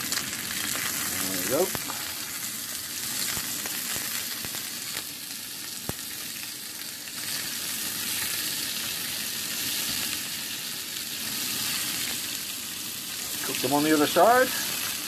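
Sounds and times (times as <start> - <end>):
pork sizzling in a frying pan: 0.0 - 15.0.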